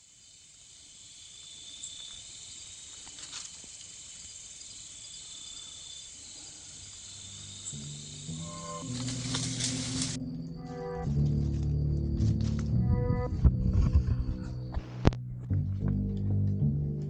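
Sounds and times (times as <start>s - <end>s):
night insects trilling: 0.0s - 12.4s
music: 7.4s - 17.0s.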